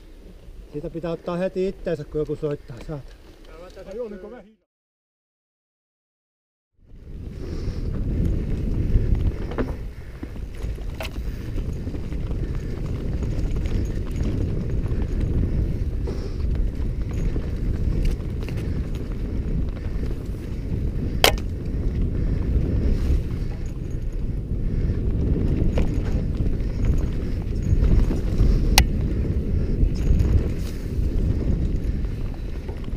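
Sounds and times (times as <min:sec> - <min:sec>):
wind and tyres rumbling: 0:00.0 - 0:04.3, 0:06.8 - 0:32.9
bike rattling over bumps: 0:06.9 - 0:32.9.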